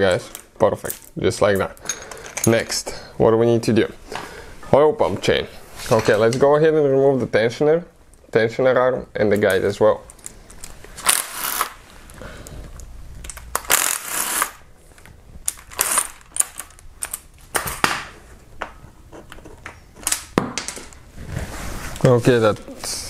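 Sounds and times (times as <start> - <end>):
metal parts clicking and clinking: 0.3 - 2.6.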